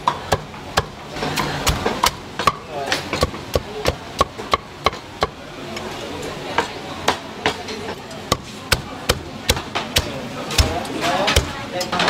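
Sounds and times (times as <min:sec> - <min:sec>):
cleaver chopping meat on board: 0:08.3 - 0:11.6.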